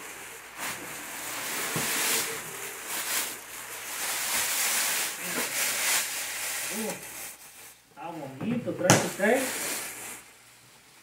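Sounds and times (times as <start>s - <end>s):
plastic bag rustling and crinkling: 0.0s - 11.0s.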